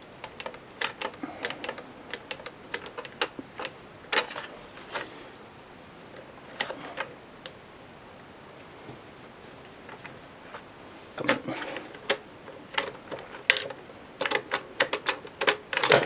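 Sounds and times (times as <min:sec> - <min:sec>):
sharp plastic clicks: 0:00.0 - 0:05.1, 0:11.2 - 0:16.0.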